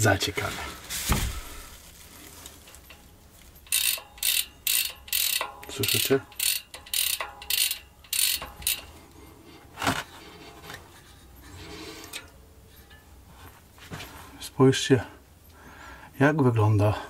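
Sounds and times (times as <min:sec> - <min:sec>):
bike freehub pawls clicking: 0:02.7 - 0:09.0.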